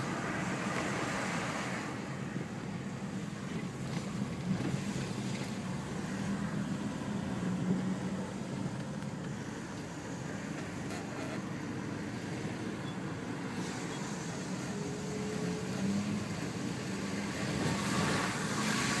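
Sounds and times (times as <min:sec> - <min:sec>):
car engine and tyre noise: 0:00.0 - 0:19.0.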